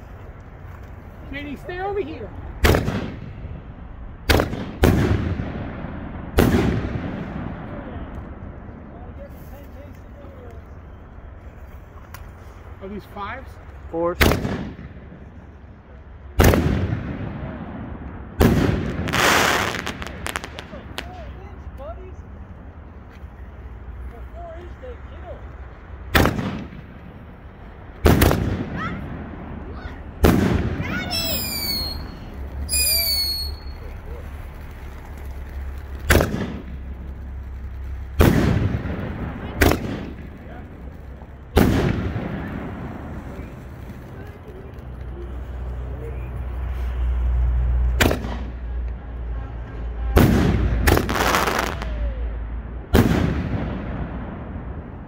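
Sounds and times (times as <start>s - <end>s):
firework shells booming: 2.5s - 8.7s, 14.2s - 15.3s, 16.3s - 21.2s, 26.0s - 44.1s, 47.9s - 48.6s, 50.1s - 52.0s, 52.9s - 55.0s
firework high whistling: 29.7s - 40.3s.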